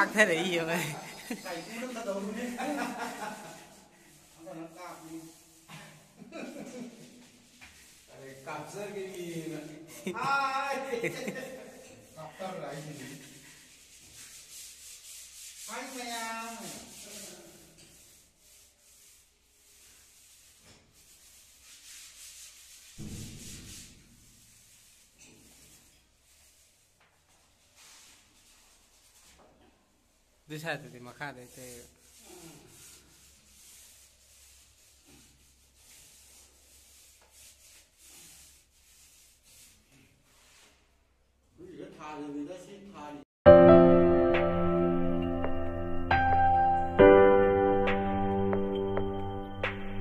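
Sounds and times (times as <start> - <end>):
paint roller rubbing on wall: 0.0 - 29.6, 31.1 - 41.2.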